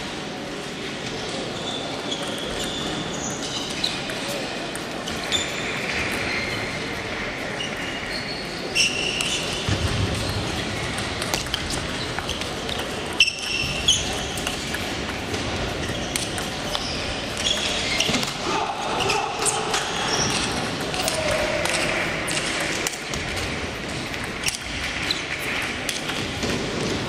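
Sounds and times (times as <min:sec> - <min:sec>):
murmur of voices: 0:00.0 - 0:27.0
table tennis ball clicking: 0:10.9 - 0:17.7.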